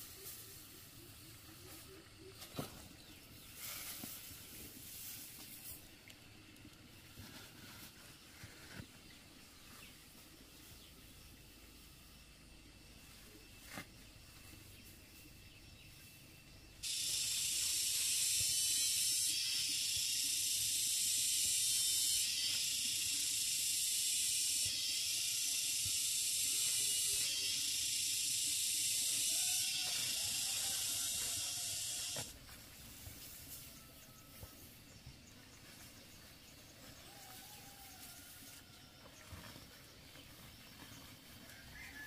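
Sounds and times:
loud steady hiss: 0.0 - 35.0.

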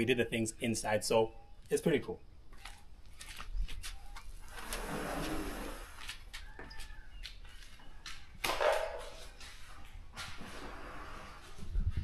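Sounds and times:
sliding glass door rumbling: 4.5 - 6.0, 10.4 - 11.6.

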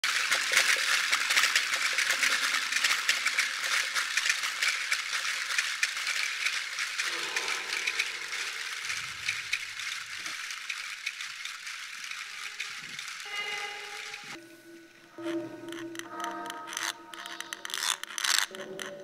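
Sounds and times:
rattling crackle of tiny clicks: 0.0 - 14.4, 15.7 - 19.0.

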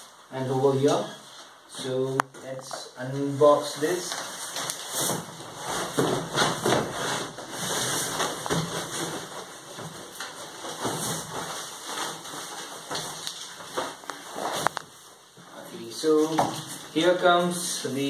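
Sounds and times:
packing sheet crinkling: 3.8 - 15.0
cardboard carton rustling and scraping: 4.3 - 15.0.

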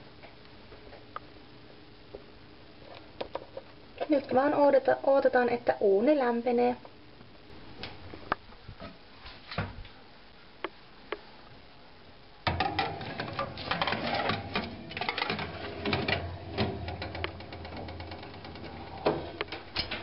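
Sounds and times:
baking tray scraping oven rack: 12.5 - 20.0.

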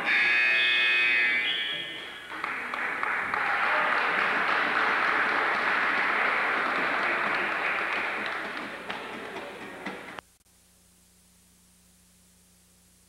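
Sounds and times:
spectators applauding: 1.9 - 10.2.

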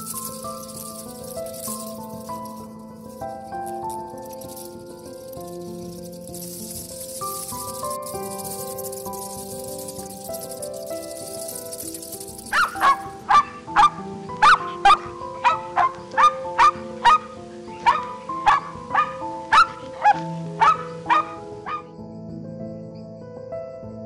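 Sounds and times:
background music: 0.0 - 24.0
wolf yelping barks: 12.5 - 21.9.

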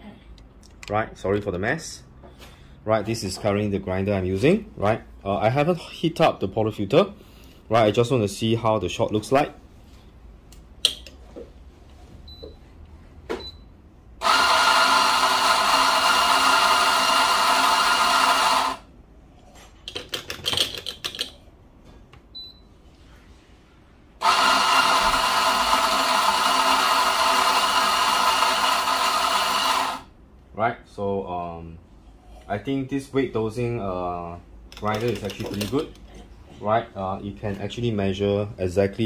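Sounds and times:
coffee grinder motor grinding: 14.2 - 18.9, 24.2 - 30.1.

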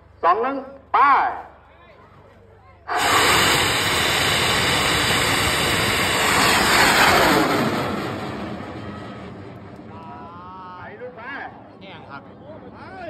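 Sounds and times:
rocket exhaust rushing: 2.9 - 10.4.

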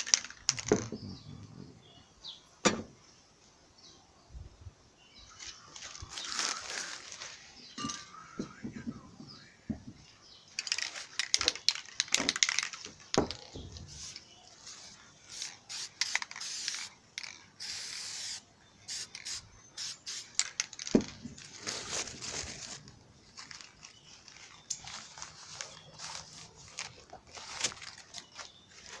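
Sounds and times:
newspaper crinkling: 5.3 - 7.6, 21.0 - 29.0
spray can hissing: 15.3 - 20.6
rustling and knocks: 20.4 - 29.0.

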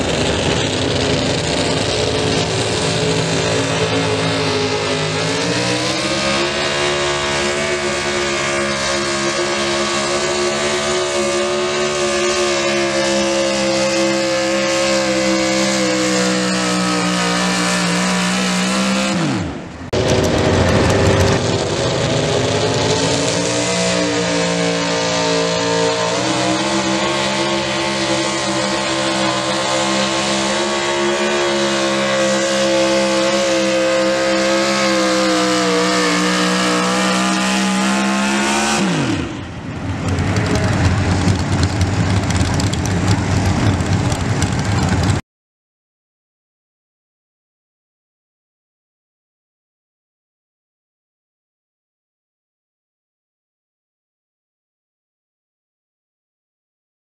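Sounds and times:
truck engines screaming at full throttle: 0.0 - 45.2.

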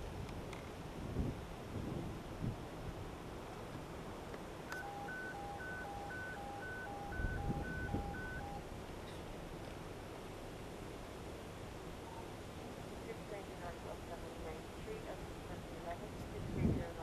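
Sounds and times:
steady background noise: 0.0 - 17.0
two-tone electronic beeping: 4.7 - 8.6.

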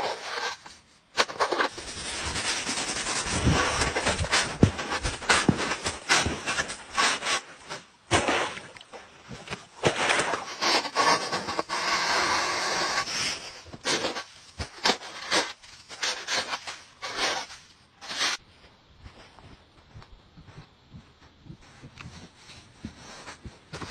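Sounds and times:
packed snow crunching and scraping: 1.2 - 7.4.

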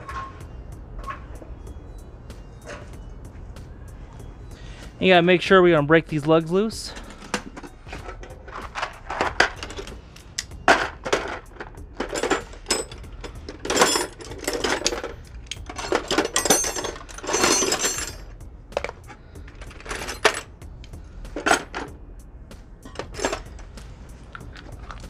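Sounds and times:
metal ringing and scraping: 0.0 - 5.2, 6.7 - 20.6, 22.8 - 23.8
wrench clanking on lug nuts: 6.9 - 22.0.

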